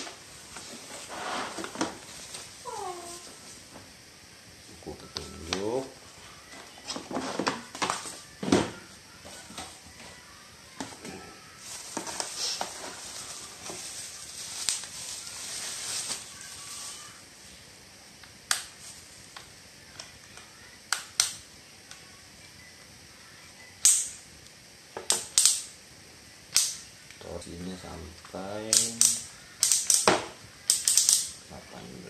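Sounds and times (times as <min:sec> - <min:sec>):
bubble wrap crinkling: 0:00.0 - 0:03.8, 0:11.1 - 0:17.5, 0:18.6 - 0:19.4.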